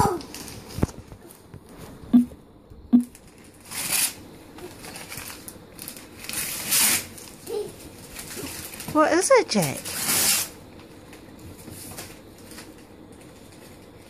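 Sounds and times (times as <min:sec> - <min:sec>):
wrapping paper tearing: 0:00.0 - 0:01.2, 0:03.1 - 0:13.8.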